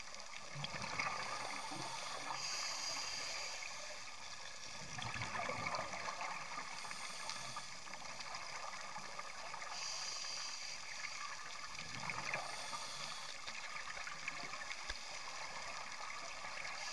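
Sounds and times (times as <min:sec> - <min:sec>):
fine underwater crackle: 0:00.0 - 0:16.9
gurgling exhaled bubbles: 0:00.4 - 0:02.3, 0:04.7 - 0:07.2.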